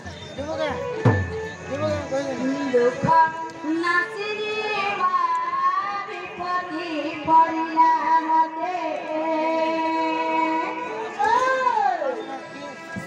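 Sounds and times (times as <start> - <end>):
woman singing through loudspeaker: 2.4 - 12.2.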